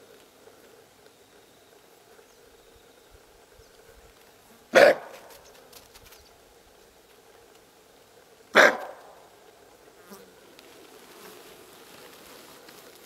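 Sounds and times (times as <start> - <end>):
antelope alarm bark: 4.7 - 5.4, 8.5 - 9.3.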